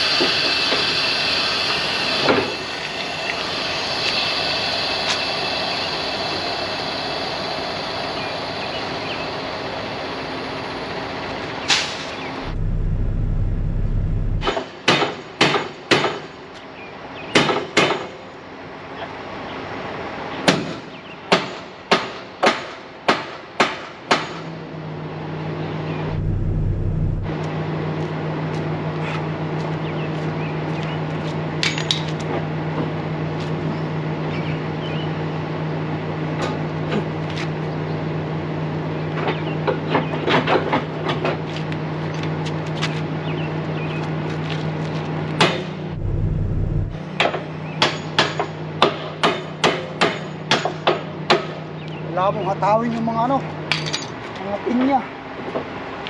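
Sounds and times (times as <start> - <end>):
low steady hum: 12.4 - 14.5, 25.9 - 27.4, 45.9 - 47.1.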